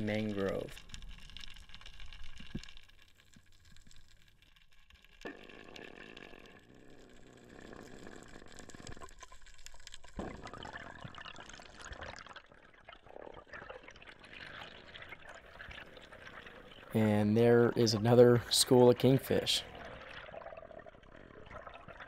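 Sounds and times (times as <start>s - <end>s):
faint crackling clicks: 0.0s - 17.6s.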